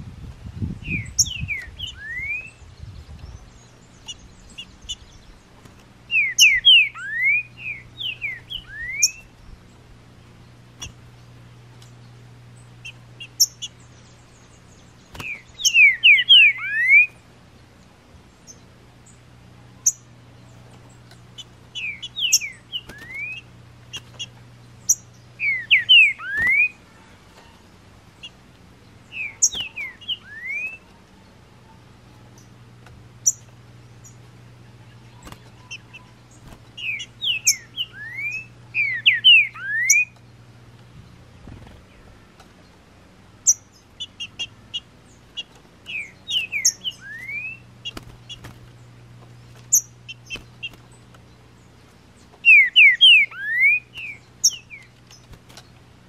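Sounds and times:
bird whistling song: 0:00.6 - 0:05.4, 0:06.1 - 0:09.6, 0:12.8 - 0:17.2, 0:21.4 - 0:27.0, 0:29.0 - 0:31.0, 0:34.9 - 0:40.2, 0:43.4 - 0:48.5, 0:52.2 - 0:55.3.

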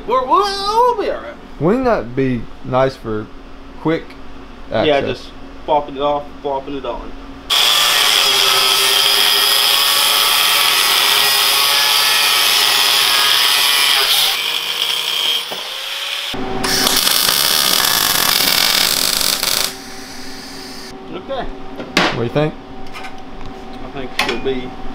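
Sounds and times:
angle grinder cutting steel: 0:07.5 - 0:20.9.

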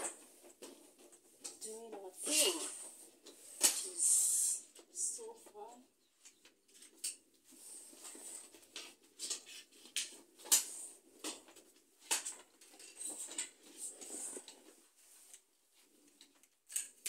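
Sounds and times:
plastic panels clicking and rattling: 0:08.4 - 0:13.8.

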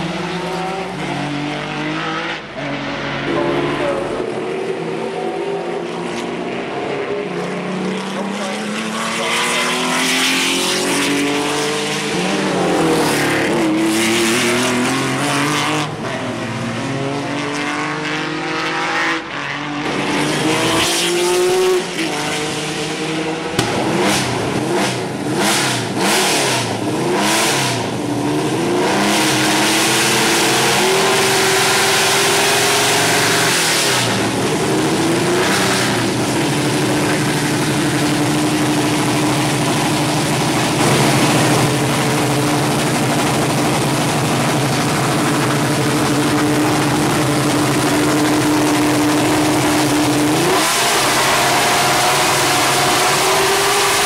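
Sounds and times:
race car engine accelerating: 0:00.0 - 0:54.0.

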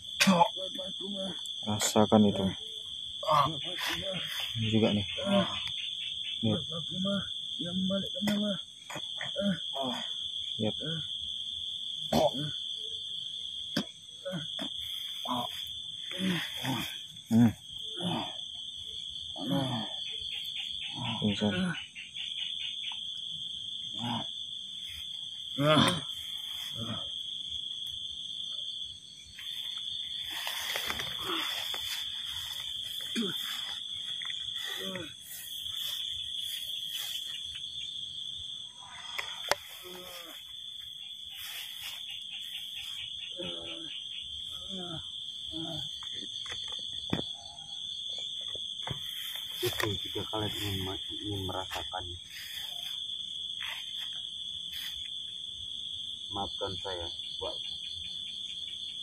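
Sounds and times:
people groaning and crying out: 0:08.2 - 0:10.1, 0:14.2 - 0:18.6, 0:19.4 - 0:20.0, 0:25.6 - 0:27.2, 0:30.5 - 0:35.4, 0:38.8 - 0:40.4, 0:44.5 - 0:46.0
short vocal groans: 0:25.6 - 0:26.1.

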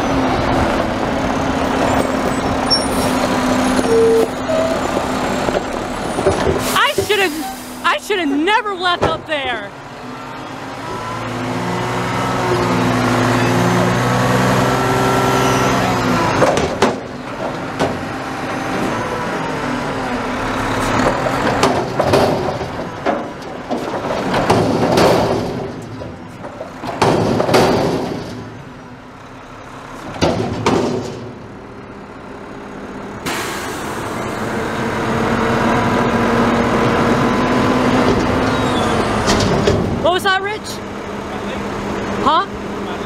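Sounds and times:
garbage truck engine and hydraulics: 0:00.0 - 0:43.0
metal bangs and clatter: 0:16.4 - 0:18.0, 0:21.0 - 0:28.7, 0:30.0 - 0:31.5, 0:39.2 - 0:40.2
trash falling into hopper: 0:21.2 - 0:28.6.

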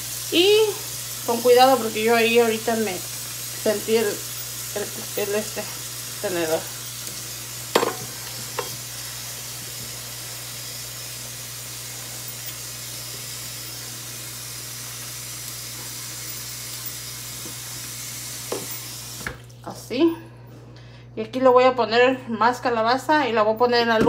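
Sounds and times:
tap running into pot of water: 0:07.7 - 0:08.8, 0:18.4 - 0:19.4.

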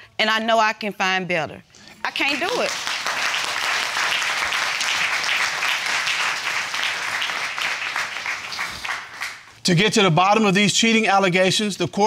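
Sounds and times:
audience applauding: 0:02.2 - 0:09.6.

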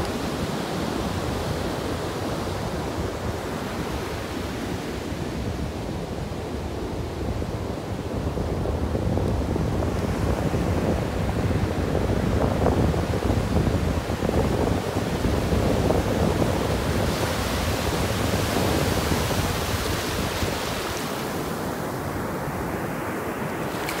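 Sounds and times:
wind buffeting microphone: 0:05.1 - 0:24.0
surf washing onto beach: 0:08.0 - 0:24.0.

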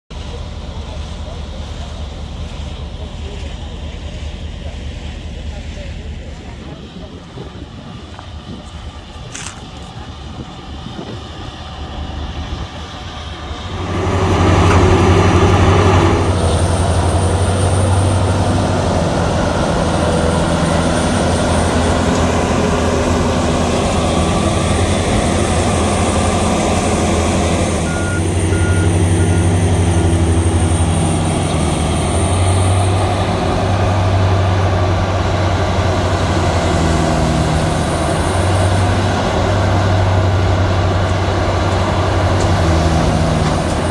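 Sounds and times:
wood grinder engine hum: 0:11.7 - 0:43.9
reversing alarm beeps: 0:27.8 - 0:30.2.

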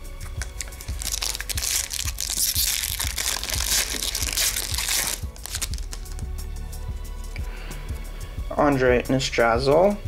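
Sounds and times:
cards rustling and clicking: 0:00.4 - 0:06.3
foil wrapper crinkling: 0:00.6 - 0:06.2.

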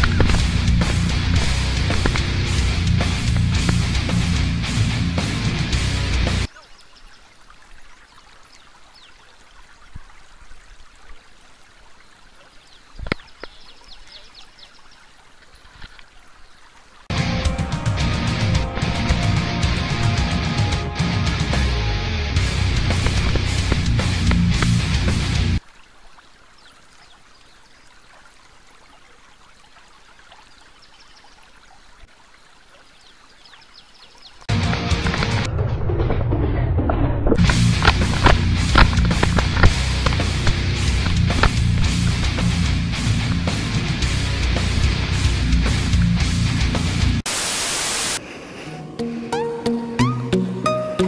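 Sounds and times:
music: 0:00.0 - 0:06.5, 0:17.1 - 0:25.6, 0:34.5 - 0:35.5, 0:37.4 - 0:47.2, 0:48.8 - 0:51.0
low steady outdoor noise: 0:00.0 - 0:17.1, 0:22.3 - 0:34.5.

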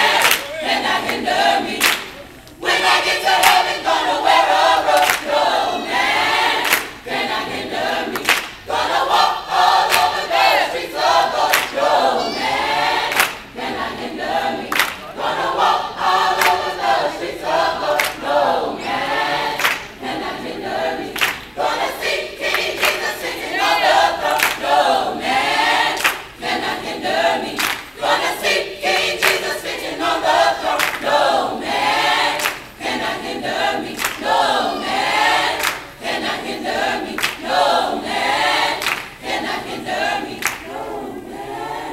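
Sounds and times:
handclaps: 0:00.0 - 0:01.2, 0:01.8 - 0:02.6, 0:03.4 - 0:03.8, 0:04.9 - 0:05.4, 0:06.6 - 0:07.0, 0:08.1 - 0:08.6, 0:09.8 - 0:10.2, 0:11.5 - 0:11.8, 0:13.1 - 0:13.5, 0:14.7 - 0:15.0, 0:16.4 - 0:16.7, 0:18.0 - 0:18.2, 0:19.6 - 0:20.0, 0:21.2 - 0:21.5, 0:22.5 - 0:23.1, 0:24.3 - 0:24.7, 0:26.0 - 0:26.3, 0:27.6 - 0:27.9, 0:29.2 - 0:29.5, 0:30.6 - 0:31.2, 0:32.4 - 0:32.7, 0:33.9 - 0:34.5, 0:35.5 - 0:35.9, 0:37.1 - 0:37.5, 0:38.8 - 0:39.2, 0:40.4 - 0:40.7
mixed choir singing: 0:00.0 - 0:41.9.

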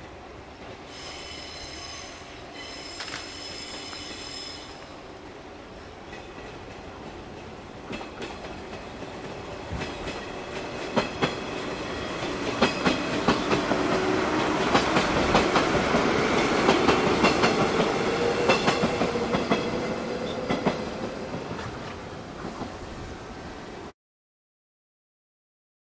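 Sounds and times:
train wheels clacking over rail joints: 0:06.1 - 0:22.8.

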